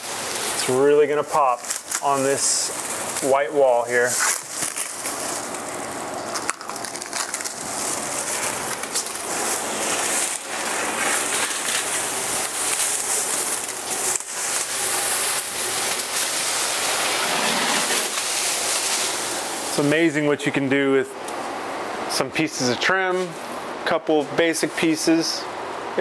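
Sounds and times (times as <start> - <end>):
plastic sheeting crinkling: 0.0 - 20.6.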